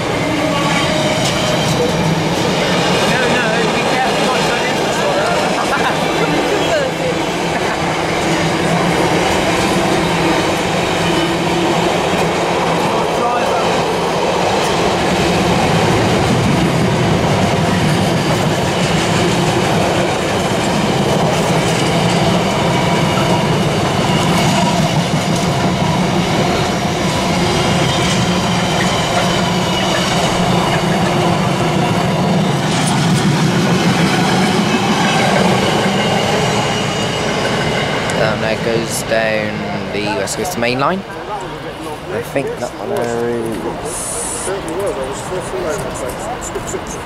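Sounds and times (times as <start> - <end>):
freight train rumbling past: 0.0 - 47.0.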